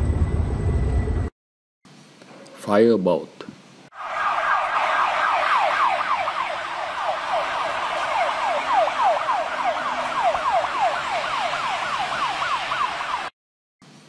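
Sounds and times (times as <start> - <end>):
emergency siren yelping: 3.9 - 13.3.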